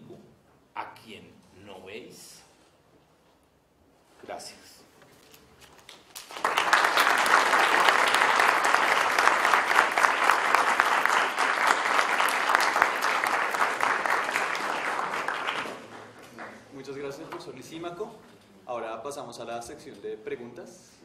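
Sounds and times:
audience applauding: 5.9s - 16.7s.

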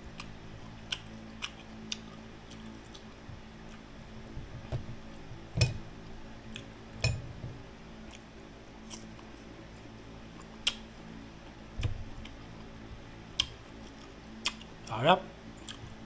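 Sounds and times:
crunching and chewing mango: 0.0s - 4.4s, 8.0s - 16.0s
low steady hum: 0.0s - 16.0s.

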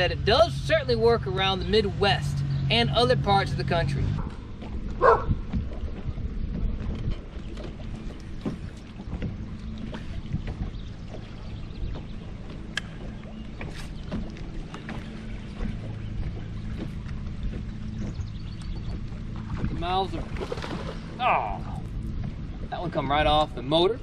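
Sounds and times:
electric trolling motor hum: 0.0s - 24.0s
small waves slapping boat hull: 0.0s - 24.0s.

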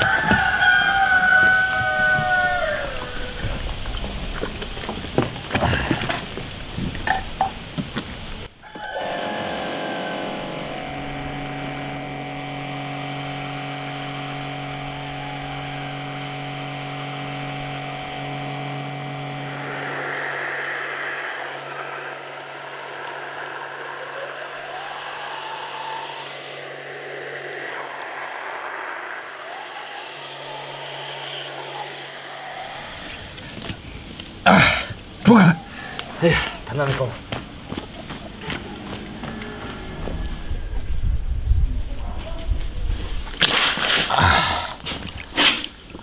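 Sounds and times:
pressure washer humming: 7.1s - 40.7s
water spray hissing: 42.9s - 45.9s.

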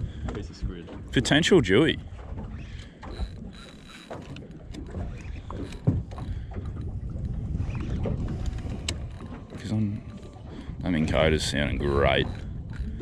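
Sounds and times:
sea wash: 0.0s - 13.0s
wind: 0.0s - 13.0s
fishing reel clicking: 3.1s - 4.4s.

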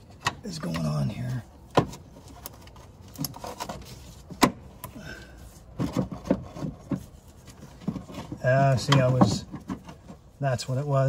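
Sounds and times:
plastic rubbing: 5.6s - 10.4s.

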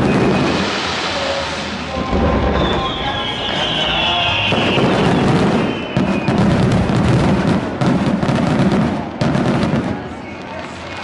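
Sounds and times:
firework crackling: 0.0s - 11.0s
firework shells booming: 1.9s - 9.9s.

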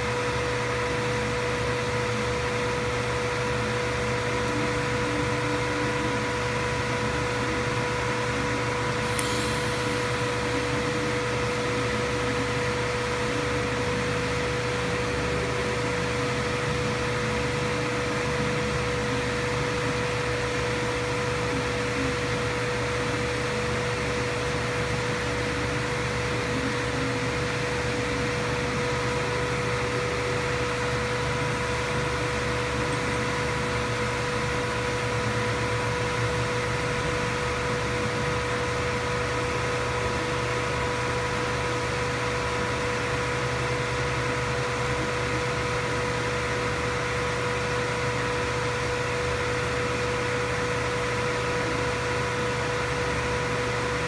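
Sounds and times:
machine hum with high whine: 0.0s - 54.0s
faint higher whine: 1.5s - 39.0s.

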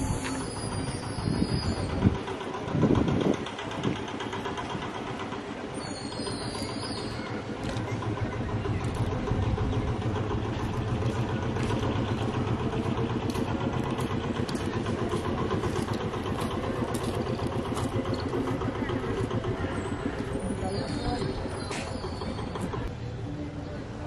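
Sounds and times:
engine idling: 0.0s - 24.0s.

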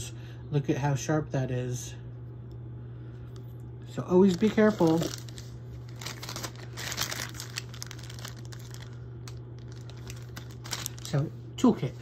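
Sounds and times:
low electrical hum: 0.0s - 12.0s
plastic bag crinkling: 4.0s - 11.3s.

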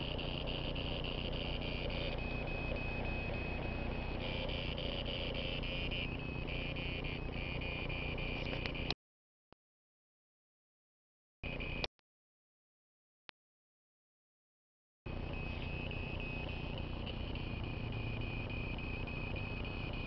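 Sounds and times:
pulsing electronic buzzing tone: 0.0s - 9.0s, 15.1s - 20.0s.

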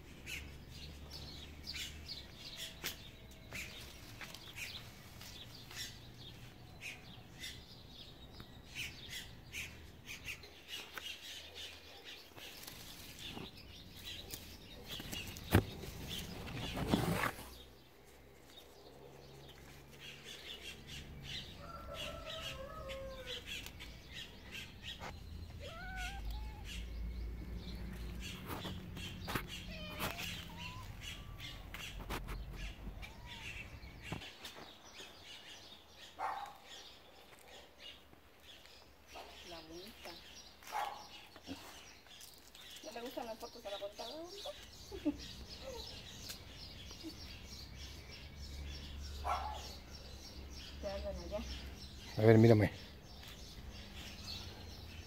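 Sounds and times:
birds chirping: 0.0s - 55.0s
lower curving bird calls: 20.0s - 36.9s.

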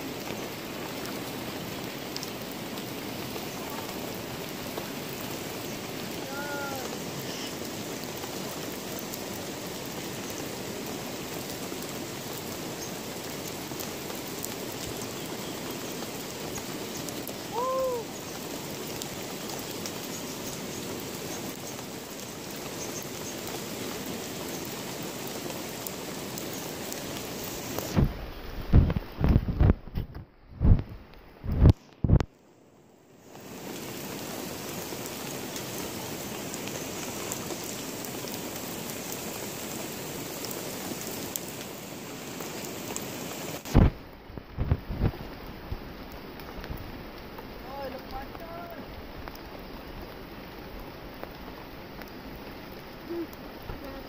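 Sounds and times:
rushing water: 0.0s - 54.0s
rising and falling calls: 17.4s - 18.4s.

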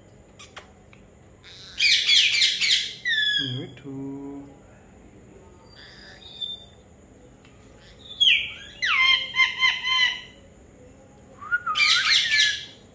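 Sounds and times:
parakeet calling: 1.4s - 3.7s, 5.7s - 6.7s, 7.8s - 10.4s, 11.8s - 12.8s.

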